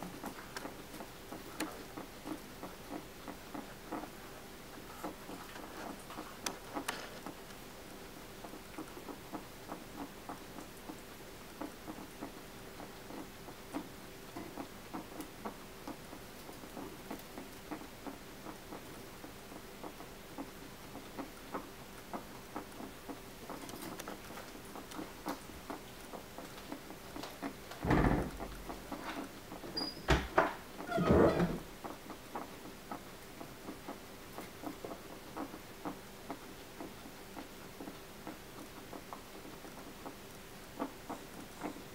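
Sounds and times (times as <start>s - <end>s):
guinea pig crunching pellets: 0.0s - 27.8s, 28.4s - 30.0s, 31.8s - 41.9s.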